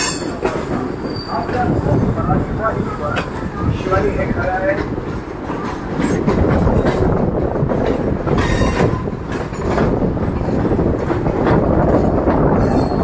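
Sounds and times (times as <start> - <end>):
train wheels rumbling on rails: 0.0 - 13.0.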